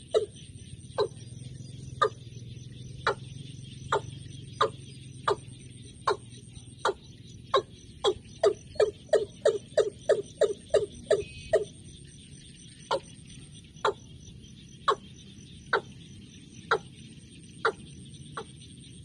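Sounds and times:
bird calling sharp notes: 0.0s - 12.0s.

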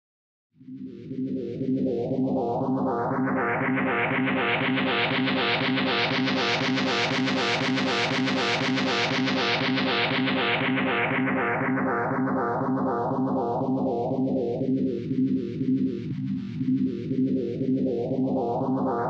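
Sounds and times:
instrumental guitar music: 4.1s - 12.8s.

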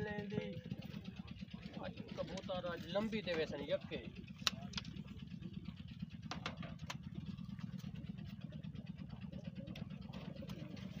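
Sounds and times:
low rumble: 4.0s - 11.0s.

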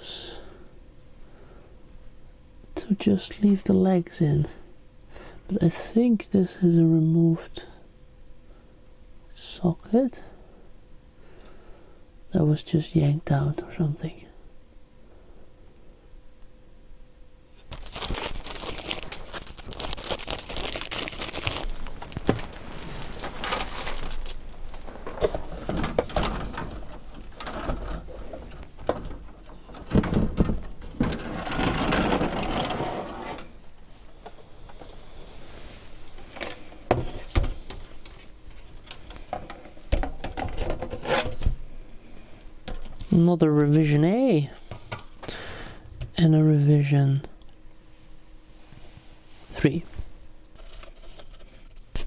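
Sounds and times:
circuit boards scraping and clattering: 25.0s - 33.5s.

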